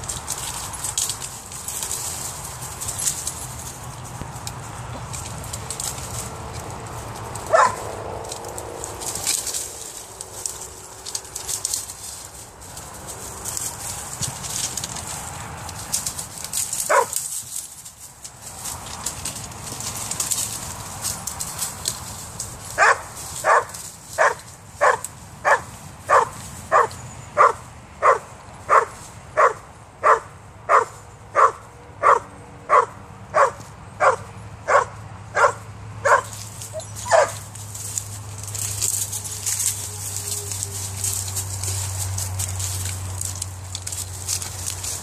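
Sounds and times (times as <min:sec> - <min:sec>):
rustling: 0:00.0 - 0:30.2, 0:35.4 - 0:45.0
dog barking: 0:07.5 - 0:07.9, 0:16.9 - 0:17.2, 0:22.8 - 0:37.4.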